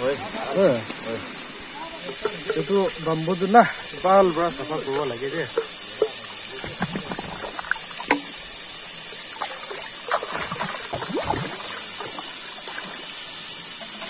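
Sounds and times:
river flowing: 0.0 - 14.0
water splashing and gurgling: 0.0 - 14.0
bubbling gurgles: 2.0 - 14.0.

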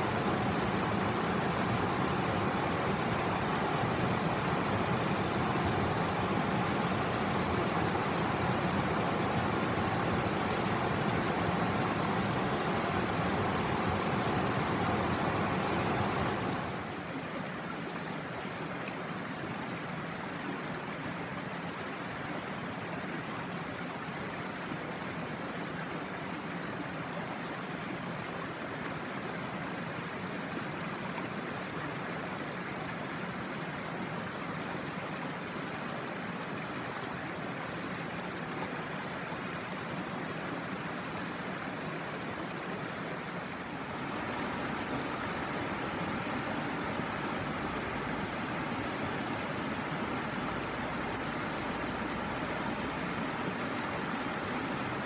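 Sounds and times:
river water rushing over rocks: 0.0 - 21.6, 32.6 - 55.0.

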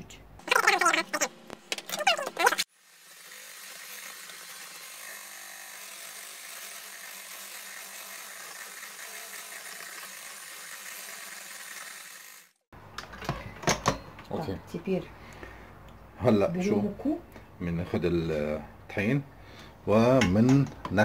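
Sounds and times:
electric mixer whisking in bowl: 2.3 - 12.6.

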